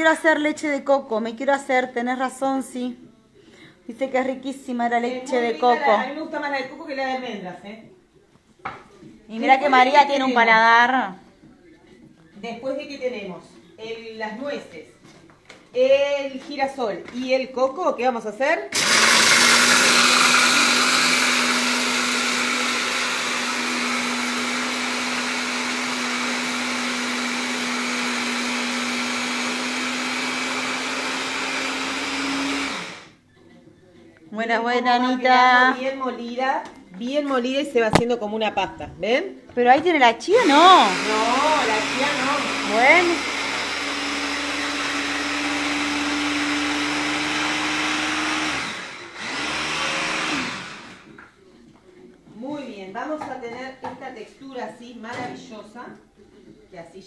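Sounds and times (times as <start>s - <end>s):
hand blender grinding nuts: 18.8s - 33.2s, 40.3s - 51.1s.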